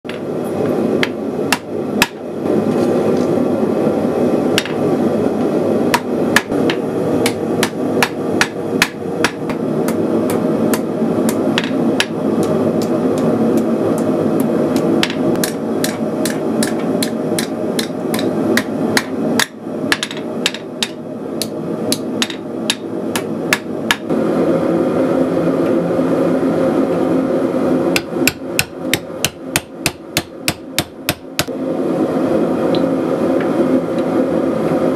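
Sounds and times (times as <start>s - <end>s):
hammer striking metal on anvil: 4.6s - 4.8s, 14.8s - 21.0s, 21.9s - 24.0s.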